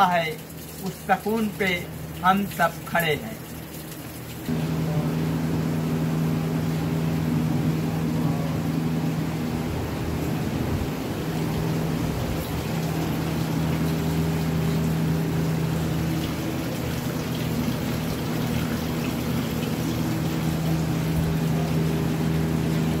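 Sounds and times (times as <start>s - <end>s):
water falling onto stone basin: 0.0s - 4.5s, 12.4s - 22.5s
steady low hum: 0.0s - 23.0s.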